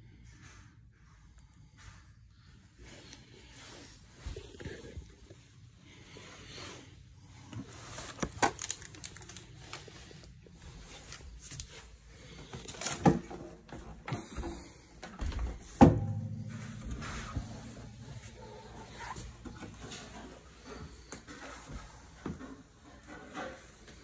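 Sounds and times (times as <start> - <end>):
handling knocks and bumps: 12.8 - 20.2
low hum: 15.9 - 19.9.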